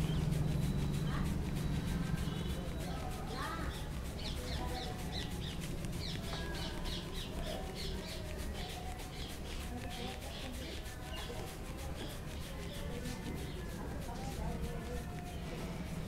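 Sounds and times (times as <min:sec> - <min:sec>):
low steady hum: 0:00.0 - 0:04.0
palm rubbing hair and scalp: 0:00.0 - 0:16.0.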